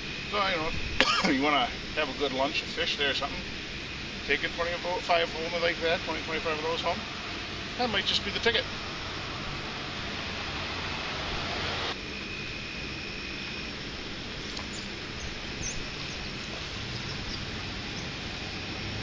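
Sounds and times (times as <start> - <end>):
faint high chirps: 12.2 - 18.2.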